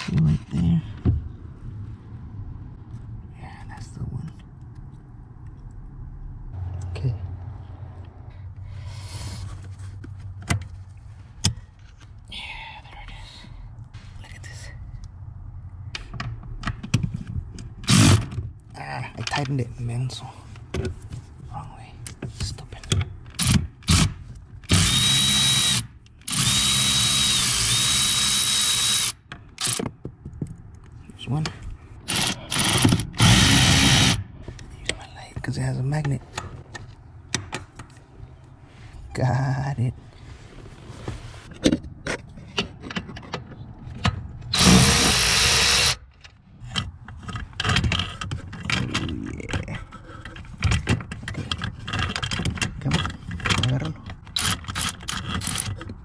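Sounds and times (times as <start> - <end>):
cordless ratchet motor whining: 24.7 - 29.2, 32.1 - 34.2, 44.6 - 46.0.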